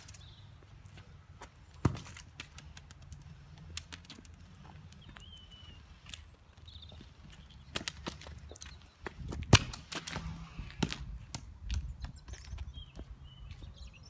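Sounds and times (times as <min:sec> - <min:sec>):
football kicked on paving: 0:01.4 - 0:03.0, 0:09.0 - 0:12.5
ball tapping on paving: 0:01.4 - 0:05.3
bird chirping: 0:04.9 - 0:09.2, 0:11.8 - 0:14.0.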